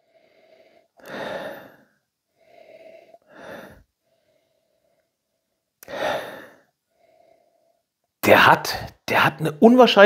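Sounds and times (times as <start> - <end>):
man breathing through nose: 0.0 - 5.2, 5.8 - 7.9.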